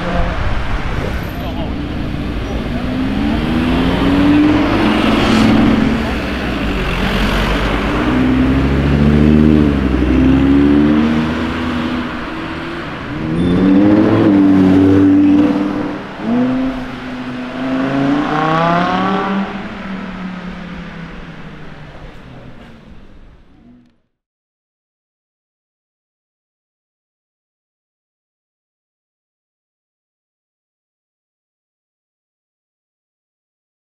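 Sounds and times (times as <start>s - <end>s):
sports car engine accelerating: 0.0s - 24.0s.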